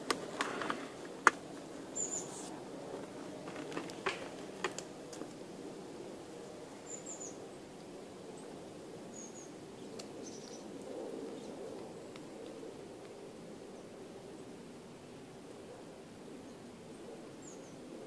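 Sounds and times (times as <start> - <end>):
low outdoor rush: 0.0 - 6.8.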